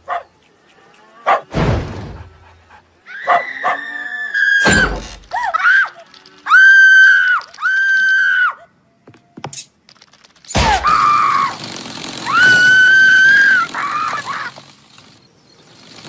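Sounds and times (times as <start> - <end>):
heavy thud: 1.5 - 2.4, 4.6 - 5.2
high-pitched screaming: 3.0 - 8.7, 10.6 - 14.8.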